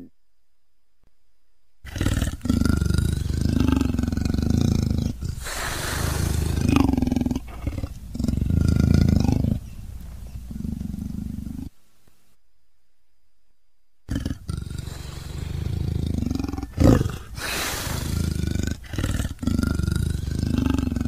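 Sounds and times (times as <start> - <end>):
leopard growling: 1.8 - 11.8, 14.1 - 21.0
leopard hissing: 1.9 - 11.8, 14.1 - 21.0.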